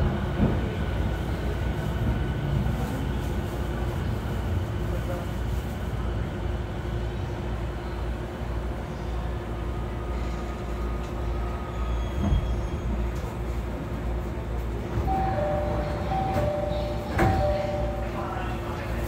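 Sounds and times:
train rumble and hum: 0.0 - 19.0
two-note door chime: 15.1 - 18.2.

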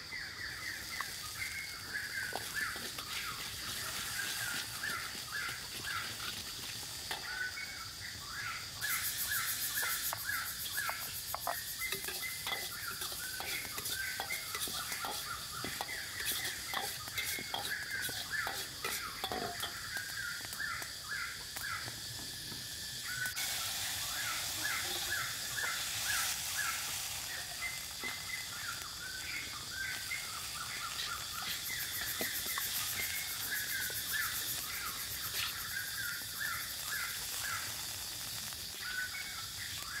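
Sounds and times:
birds chirping: 0.0 - 40.0
food sizzling in oil: 0.0 - 40.0
metal ladle scraping a wok: 11.4 - 19.8.

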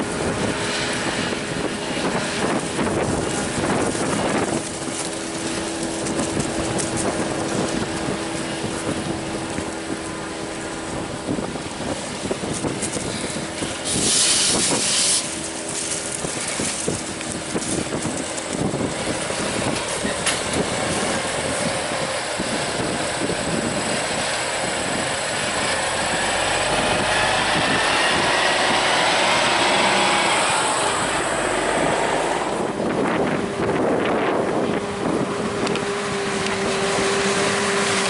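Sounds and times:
heavy diesel machinery running: 0.0 - 38.0
loud hiss: 13.0 - 16.8.

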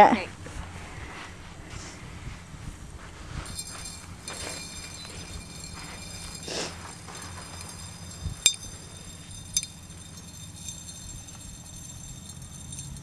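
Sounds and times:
glass vials clinking on vase: 3.5 - 13.0.

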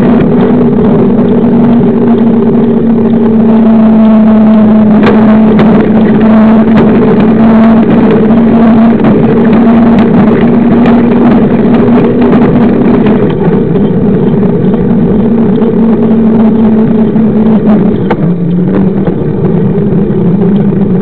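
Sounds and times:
bike tyre humming on asphalt: 0.0 - 21.0
wind on microphone: 0.0 - 21.0.

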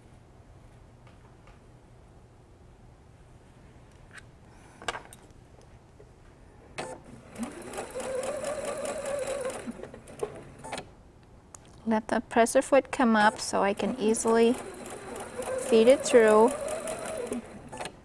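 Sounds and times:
sewing machine motor: 7.1 - 10.8, 13.2 - 18.0.

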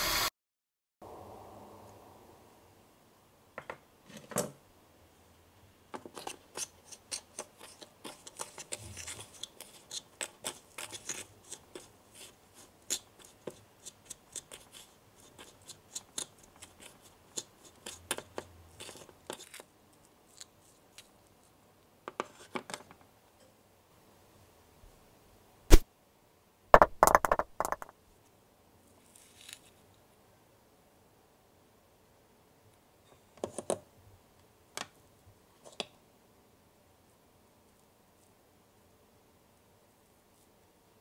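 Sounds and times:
plastic spatula scraping a bowl: 6.1 - 19.6.

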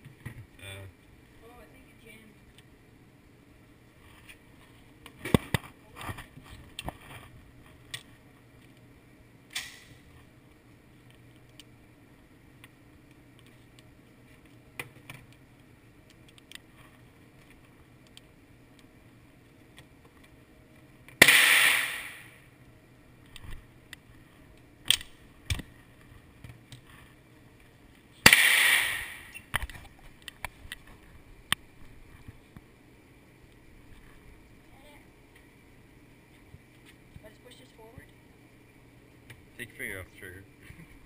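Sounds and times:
sharp crack: 9.5 - 10.0, 21.1 - 22.4, 24.8 - 25.7, 28.2 - 29.7
loud gunshot: 21.2 - 22.4, 28.2 - 29.3.

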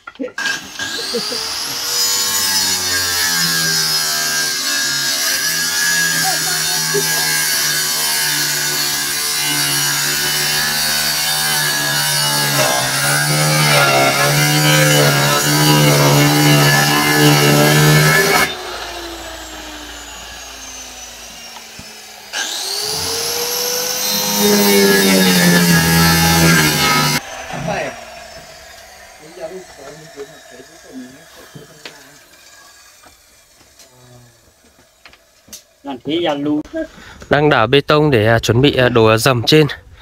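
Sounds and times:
circular saw cutting plywood: 0.3 - 36.7.

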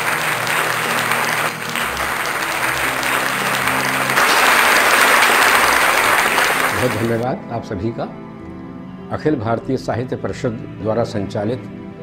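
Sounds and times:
audience applauding: 0.0 - 7.2
low background music: 0.0 - 12.0.

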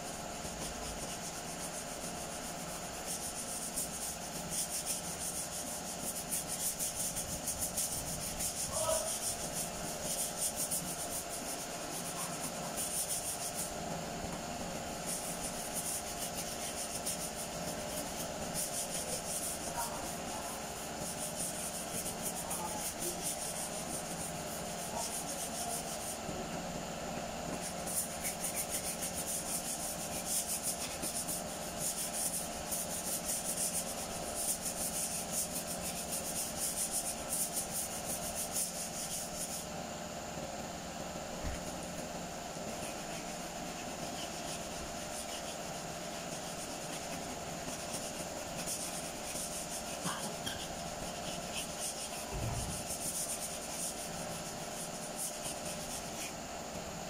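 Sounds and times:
sandpaper rasping on metal panel: 0.0 - 13.8, 14.6 - 26.2, 27.5 - 39.7, 42.6 - 56.4
faint hum: 0.0 - 57.0.

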